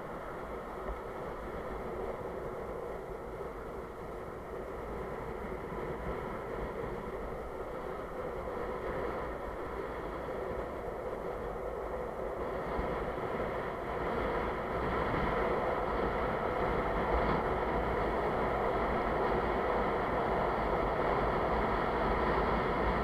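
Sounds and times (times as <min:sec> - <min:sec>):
skateboard wheels rolling on asphalt: 0:00.0 - 0:23.0
wind buffeting microphone: 0:00.0 - 0:23.0.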